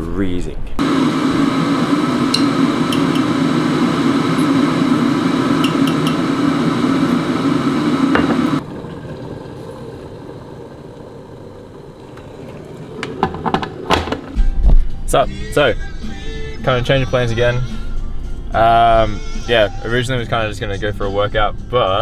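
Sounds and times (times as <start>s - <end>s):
coffee machine humming: 0.8s - 14.8s.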